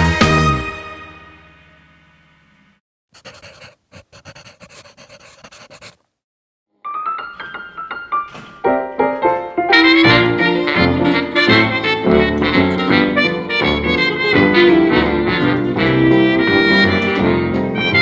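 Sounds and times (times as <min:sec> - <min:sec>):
brass: 0:00.0 - 0:01.3, 0:09.4 - 0:18.0.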